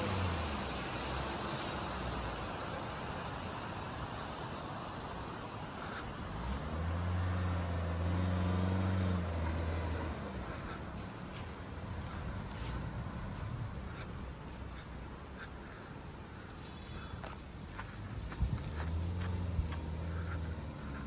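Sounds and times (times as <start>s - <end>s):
road noise: 0.0s - 21.0s
low car engine note: 5.8s - 14.0s.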